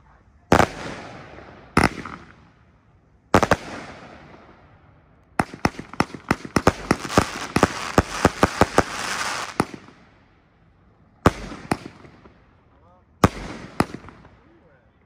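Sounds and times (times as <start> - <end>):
firework reports with crackle: 5.4 - 10.0.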